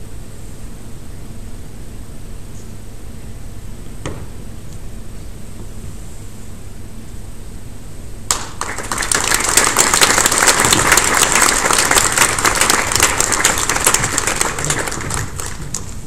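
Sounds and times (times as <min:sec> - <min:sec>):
audience applauding: 0:08.3 - 0:16.0.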